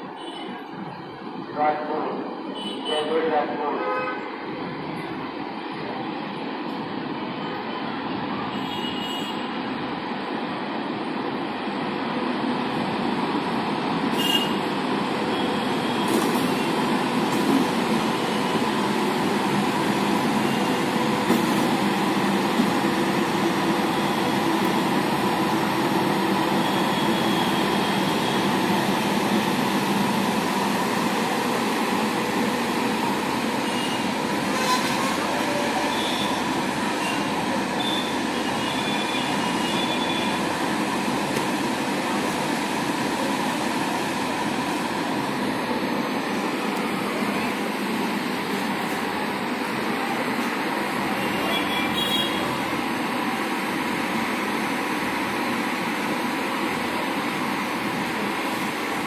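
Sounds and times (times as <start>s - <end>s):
electric locomotive hum: 9.5s - 59.0s.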